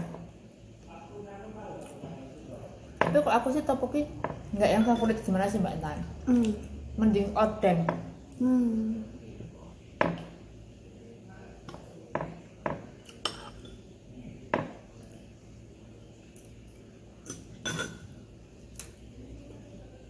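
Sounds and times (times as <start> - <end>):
cutlery clinking on ceramic bowls: 11.7 - 13.8, 17.2 - 18.1.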